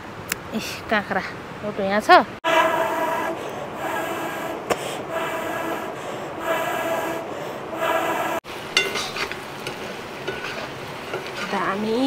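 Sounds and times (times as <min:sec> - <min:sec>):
breath puffs through a pipe: 0:02.4 - 0:08.4
spatula clinking on a wok: 0:08.7 - 0:12.0.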